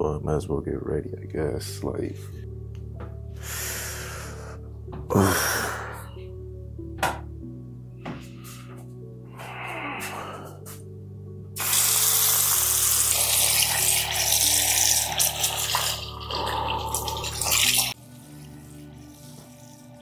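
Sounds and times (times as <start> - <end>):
soft background music: 0.0 - 20.0
sink tap running: 11.6 - 18.0.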